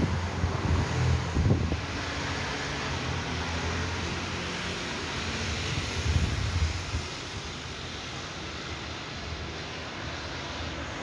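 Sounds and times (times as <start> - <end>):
wind buffeting microphone: 0.0 - 2.0, 5.5 - 7.5
electric trains rumbling: 0.0 - 11.0.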